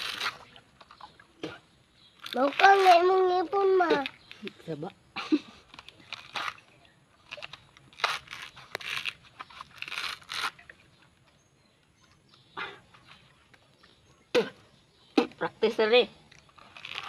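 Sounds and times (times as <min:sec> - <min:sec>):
coconut husk crunching and ripping: 0:00.0 - 0:01.2, 0:02.2 - 0:04.8, 0:05.6 - 0:11.4, 0:16.2 - 0:17.0.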